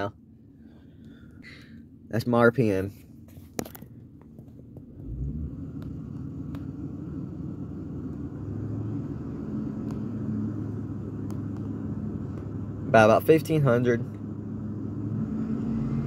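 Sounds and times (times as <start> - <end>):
truck engine revving: 4.9 - 12.9, 14.3 - 16.0.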